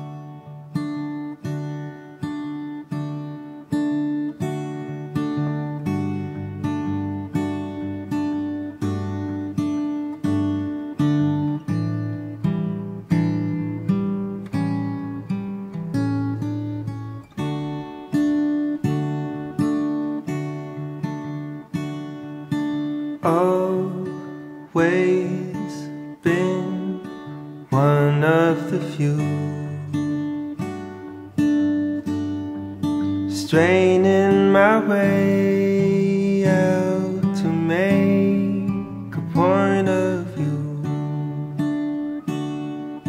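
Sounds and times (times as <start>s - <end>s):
acoustic guitar picking: 0.0s - 43.0s
man singing: 23.2s - 30.2s, 33.3s - 41.6s.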